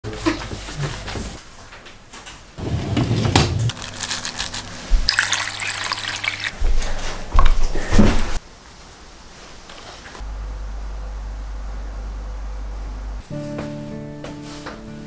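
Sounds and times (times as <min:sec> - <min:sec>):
water running: 0:03.4 - 0:07.6
steady low hum: 0:10.1 - 0:13.5
low rumble: 0:10.2 - 0:13.3.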